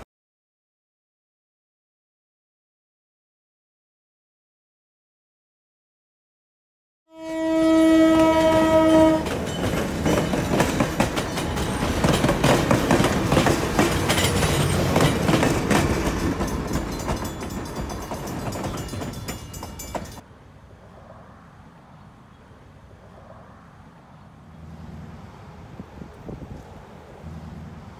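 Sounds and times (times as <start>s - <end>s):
train horn blast: 7.1s - 9.5s
train wheels clattering on rails: 8.0s - 20.2s.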